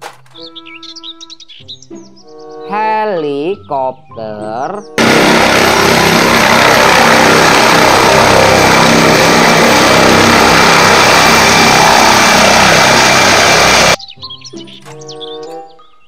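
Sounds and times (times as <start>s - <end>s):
helicopter engine and rotor noise: 5.0s - 14.0s
thin high whine: 5.0s - 14.0s.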